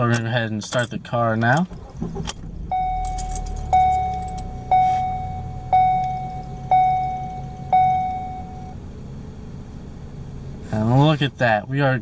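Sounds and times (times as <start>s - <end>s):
car engine idling: 0.7s - 12.0s
dashboard warning chime: 2.7s - 8.8s.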